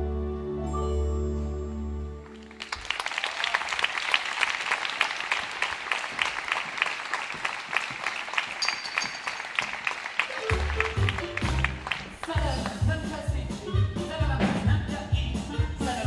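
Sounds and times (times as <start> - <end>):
audience applause: 2.2 - 12.8.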